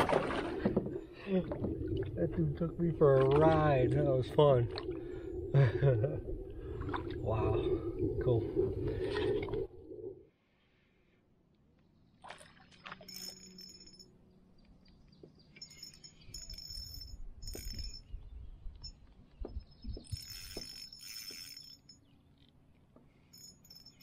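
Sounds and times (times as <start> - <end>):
metallic clinks of gear: 13.0 - 14.2, 15.5 - 18.2, 18.8 - 22.2, 23.2 - 24.0.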